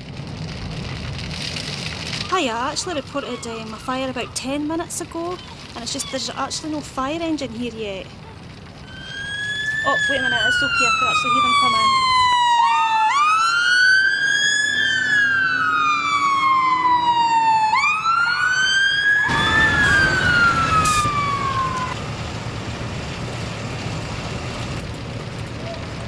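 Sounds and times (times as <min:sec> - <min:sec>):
vehicle engine and road noise: 0:00.0 - 0:12.2, 0:19.3 - 0:26.0
fire engine siren wailing: 0:08.1 - 0:26.0.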